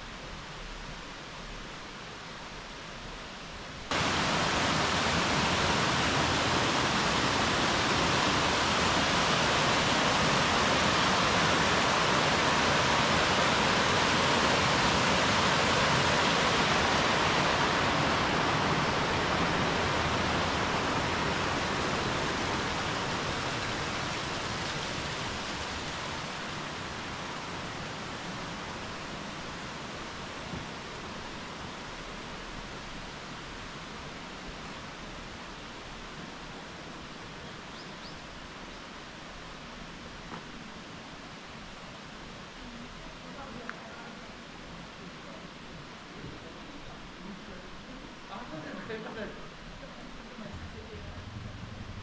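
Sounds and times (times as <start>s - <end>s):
stream water rushing: 0.0s - 52.0s.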